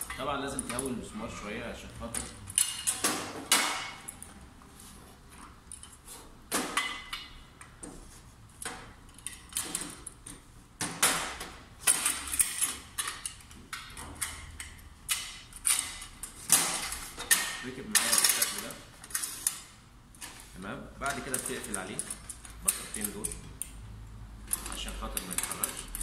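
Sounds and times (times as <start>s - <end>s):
metal clicks knocks and scrapes: 8.6s - 20.5s, 24.4s - 26.0s.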